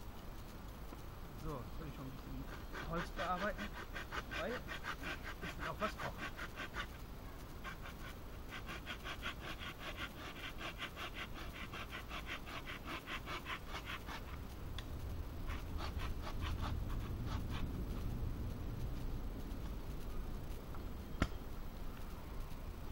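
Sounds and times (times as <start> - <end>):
blade rasping on wooden stick: 2.3 - 7.0, 7.6 - 14.5, 15.4 - 18.1.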